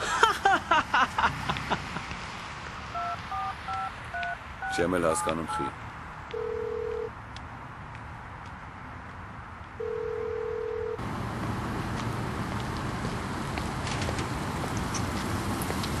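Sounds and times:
street traffic hum: 0:00.0 - 0:16.0
telephone ringback tone: 0:03.0 - 0:05.7, 0:06.3 - 0:07.1, 0:09.8 - 0:11.0.

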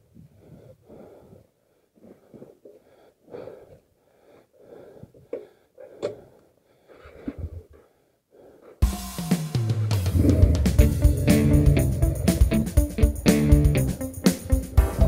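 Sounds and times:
person breathing heavily: 0:00.0 - 0:08.8, 0:10.0 - 0:13.2.

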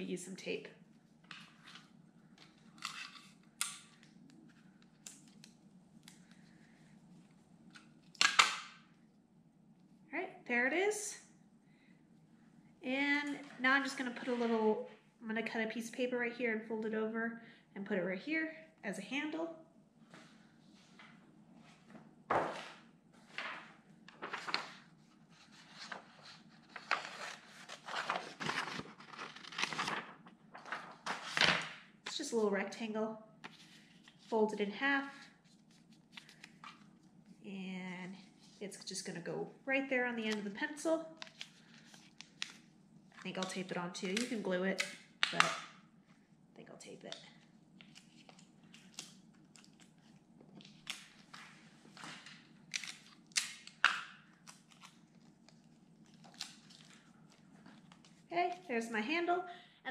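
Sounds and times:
paper rustling and crinkling: 0:21.8 - 0:32.2, 0:41.2 - 0:43.6, 0:47.8 - 0:58.3.

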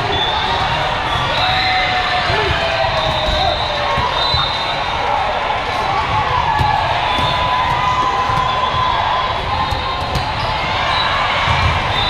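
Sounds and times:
crowd cheering and shouting: 0:00.0 - 0:12.0.

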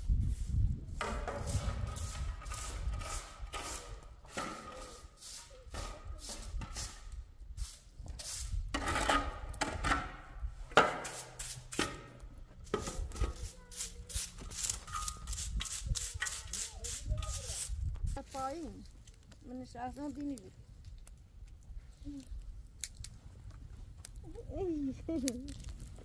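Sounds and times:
broom sweeping on concrete: 0:00.0 - 0:09.4, 0:10.4 - 0:19.0.

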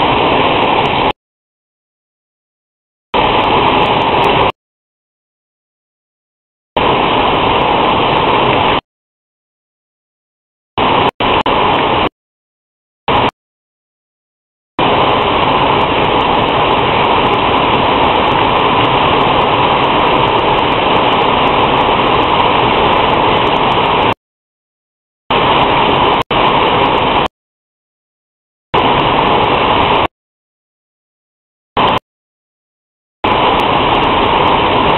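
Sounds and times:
rain hiss: 0:00.0 - 0:01.1, 0:03.2 - 0:04.5, 0:06.8 - 0:08.8, 0:10.8 - 0:12.1, 0:14.8 - 0:24.2, 0:25.3 - 0:27.3, 0:28.8 - 0:30.1, 0:33.3 - 0:34.9.

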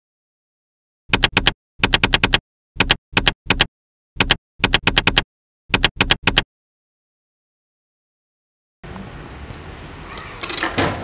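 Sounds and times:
typewriter keys clacking: 0:01.1 - 0:06.4.

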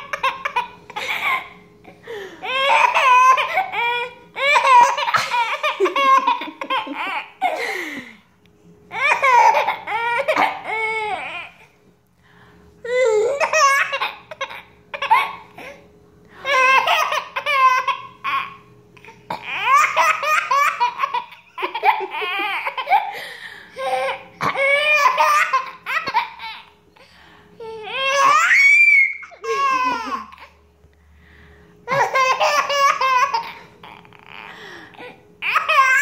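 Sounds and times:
baby laughing: 0:00.0 - 0:01.6, 0:02.4 - 0:07.7, 0:08.9 - 0:11.5, 0:12.9 - 0:15.8, 0:16.4 - 0:23.2, 0:23.8 - 0:26.8, 0:27.8 - 0:30.6, 0:31.9 - 0:34.5, 0:35.4 - 0:36.0.

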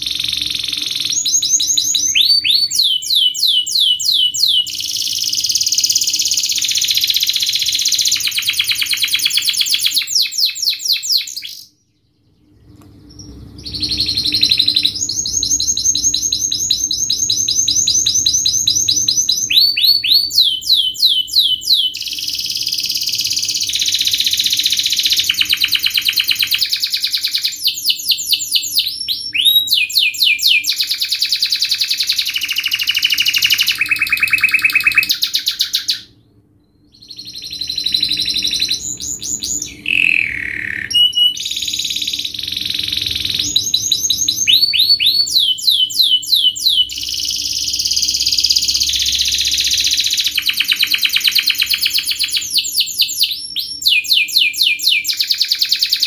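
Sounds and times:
canary singing trills: 0:00.0 - 0:56.0.

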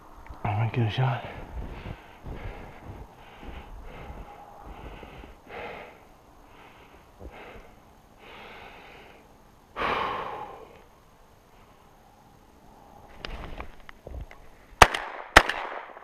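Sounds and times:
person breathing hard: 0:01.2 - 0:10.9.

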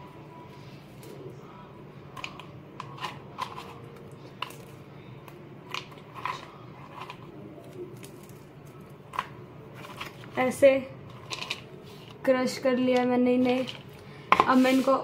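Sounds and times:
steady low hum: 0:00.0 - 0:15.0
biscuits cracking and crunching: 0:02.0 - 0:11.8.

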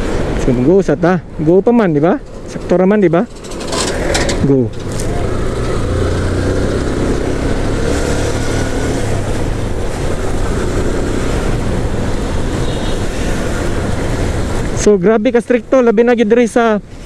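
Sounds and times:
road and wind noise: 0:00.0 - 0:17.0
motorcycle engine running: 0:02.2 - 0:08.9.

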